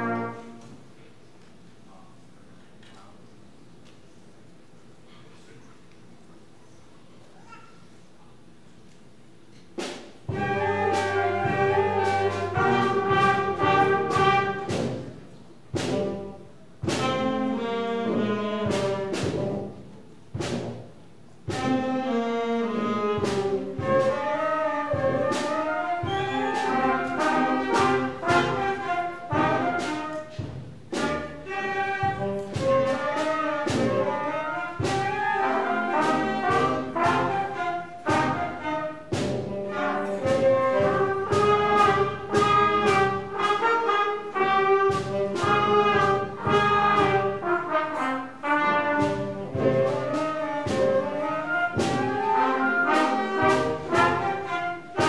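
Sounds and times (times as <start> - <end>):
concert band playing: 0.0 - 0.7, 9.8 - 55.0
brass and saxophones: 0.0 - 0.8, 10.3 - 20.8, 21.5 - 55.0
percussion strikes: 9.7 - 55.0.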